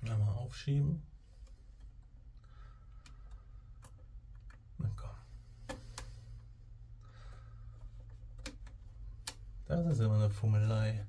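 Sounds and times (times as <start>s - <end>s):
steady low hum: 0.0s - 11.0s
track parts clicking together: 7.8s - 9.7s.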